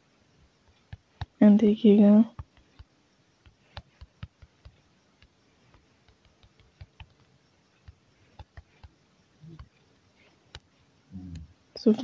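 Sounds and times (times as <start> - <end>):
soft clicks: 2.3 - 11.9.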